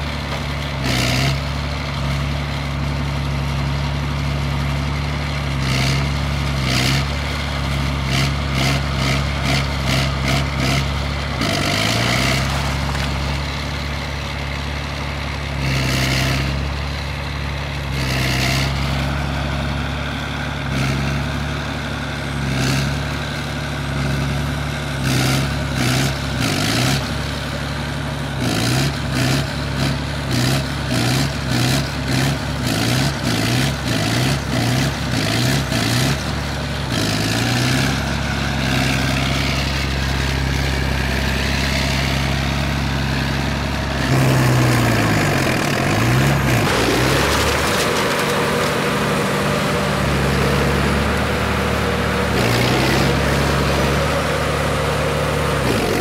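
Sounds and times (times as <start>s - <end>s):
bulldozer diesel engine: 0.0s - 56.0s
structure cracking and clattering: 46.7s - 48.8s.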